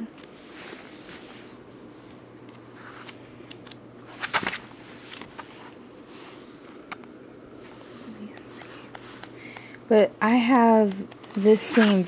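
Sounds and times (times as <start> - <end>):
book pages flipping: 2.5 - 7.0, 10.6 - 12.0.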